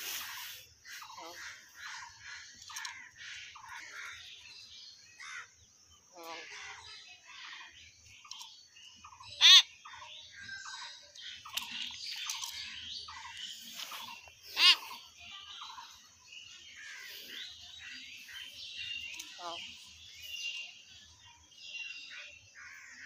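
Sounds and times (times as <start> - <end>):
myna chattering: 14.0 - 15.9.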